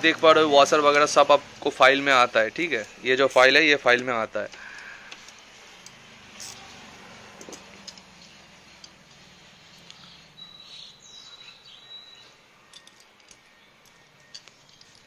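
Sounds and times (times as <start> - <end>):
clicks of small nuts and tools: 3.9 - 6.6, 7.4 - 8.1, 12.7 - 15.0.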